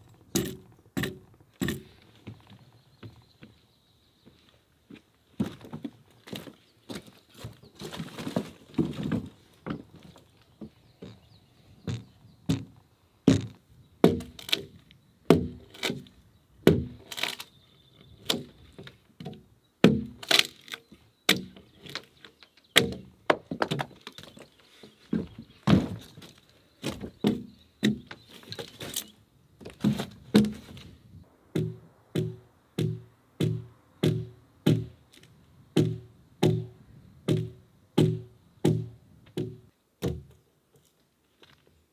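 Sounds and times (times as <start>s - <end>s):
axe chopping log: 13.3s - 14.7s, 15.3s - 16.0s, 16.6s - 17.4s, 19.8s - 20.7s, 21.3s - 21.6s, 22.8s - 23.9s, 27.2s - 28.1s, 29.8s - 30.8s, 31.5s - 35.0s, 35.8s - 36.7s, 37.3s - 40.3s.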